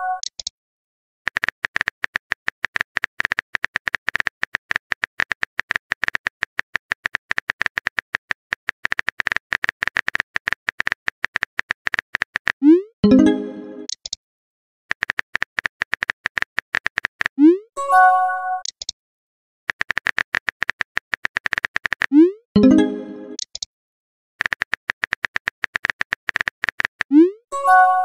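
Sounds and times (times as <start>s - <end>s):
phone keyboard typing clicks: 1.3s - 12.6s, 13.2s - 14.2s, 14.9s - 17.4s, 18.6s - 19.0s, 19.7s - 22.2s, 22.8s - 23.7s, 24.4s - 27.2s.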